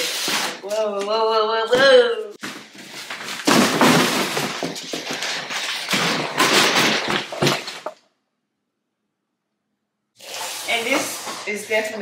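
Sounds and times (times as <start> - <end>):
packaging rustling: 2.4 - 8.0.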